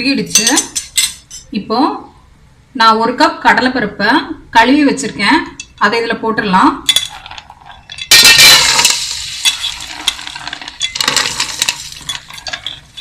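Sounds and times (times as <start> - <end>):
grains clicking on metal: 6.9 - 13.0
grains sizzling in hot oil: 8.1 - 13.0.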